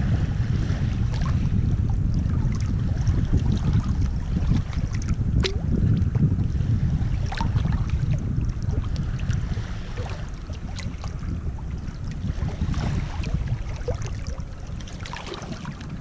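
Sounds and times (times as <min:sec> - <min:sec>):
wind buffeting microphone: 0:00.0 - 0:16.0
little water splashes: 0:02.2 - 0:06.1, 0:07.2 - 0:16.0.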